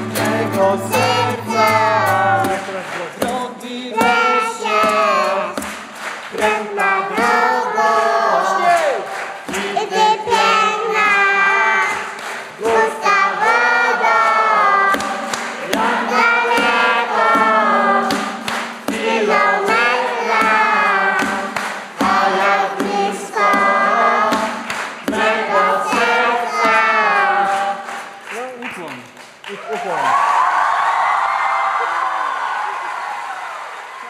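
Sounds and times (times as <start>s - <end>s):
children singing: 0.0s - 2.8s, 3.8s - 5.6s, 6.3s - 27.9s
musical accompaniment: 0.0s - 7.9s, 12.7s - 27.4s
steady beat of sharp strikes: 0.0s - 8.0s, 12.6s - 27.7s.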